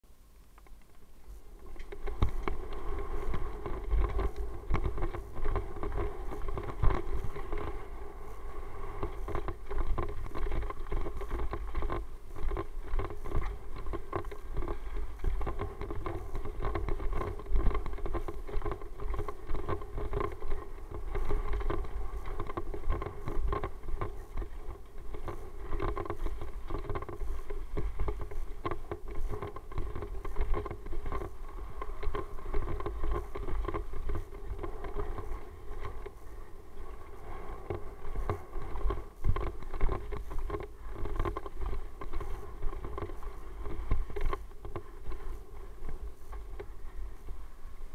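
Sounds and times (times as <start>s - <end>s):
steady hum: 0.0s - 47.9s
wind rumbling on microphone: 0.1s - 47.9s
bike knocks and rattles: 1.7s - 7.8s, 9.0s - 36.4s.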